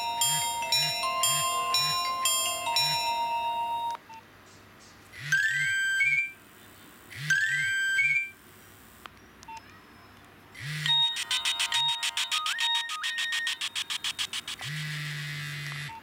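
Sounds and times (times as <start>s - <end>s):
held electronic tone: 0.0s - 4.0s, 10.6s - 15.2s
rising stepped phone beeps: 10.9s - 14.3s.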